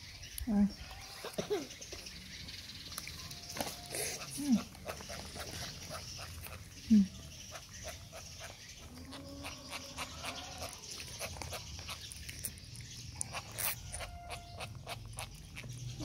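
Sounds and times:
monkey chewing and smacking: 10.8s - 15.8s.

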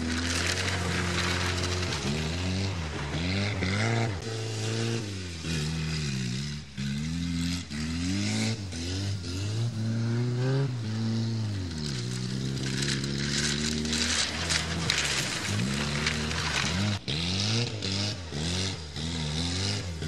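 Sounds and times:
car engine revving and sputtering: 0.0s - 20.0s.

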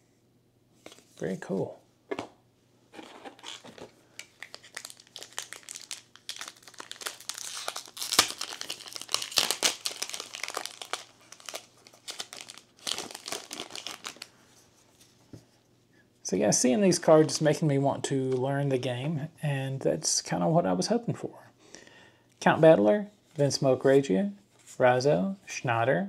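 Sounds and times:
cards rustling: 3.0s - 14.3s
foil wrapper crinkling: 3.4s - 14.3s.

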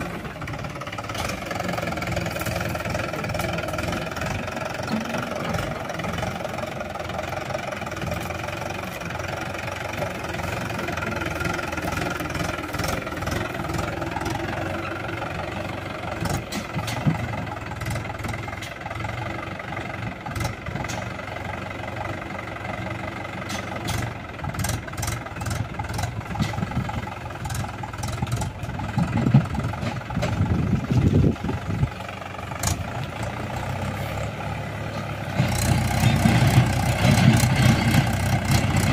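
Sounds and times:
tractor diesel engine running: 0.0s - 38.9s
sharp clicks and knocks: 23.4s - 24.8s.

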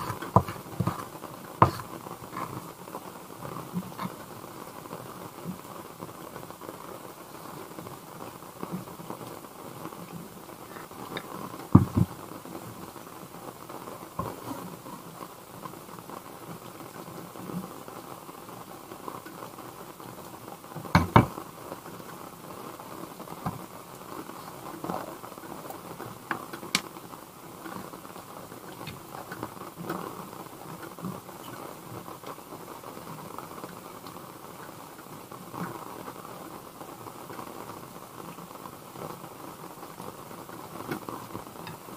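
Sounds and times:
rain pattering on a roof: 0.0s - 41.9s
sharp knocks: 11.8s - 12.1s.

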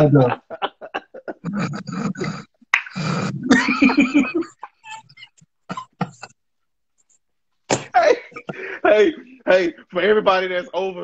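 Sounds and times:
man laughing hard: 0.2s - 2.4s, 3.4s - 5.2s.

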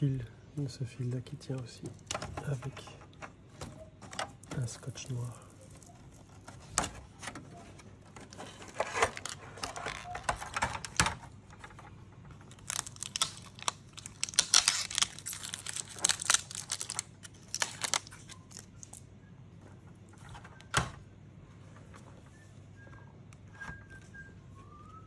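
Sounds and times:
tape peeling with crinkling: 1.9s - 19.1s.

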